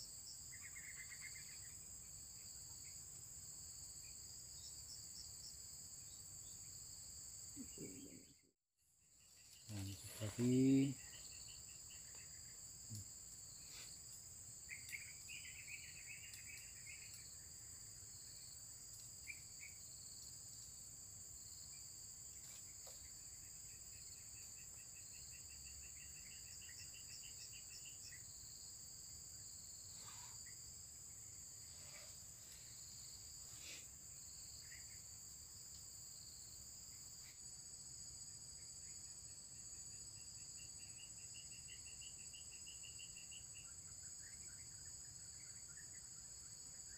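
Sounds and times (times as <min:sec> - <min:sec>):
high-pitched insect drone: 0:09.2 - 0:14.0.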